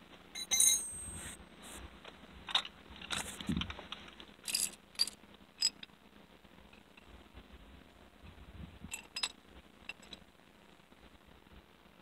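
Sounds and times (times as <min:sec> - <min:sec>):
tools clattering on concrete: 0:00.4 - 0:01.2.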